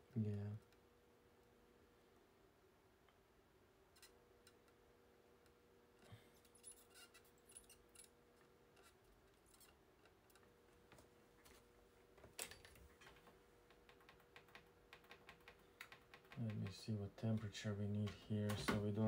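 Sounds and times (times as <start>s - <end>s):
faint steady hum: 0.0s - 19.0s
faint clicks and ticks: 12.2s - 19.0s.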